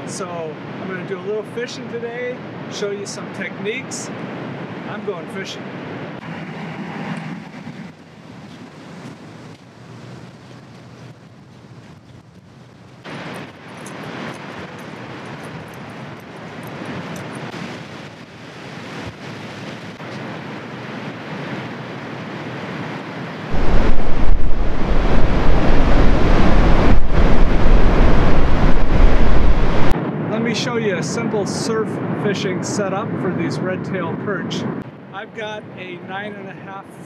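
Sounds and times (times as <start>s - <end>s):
wind buffeting microphone: 5.9s - 30.4s
surf breaking on beach: 22.4s - 30.0s.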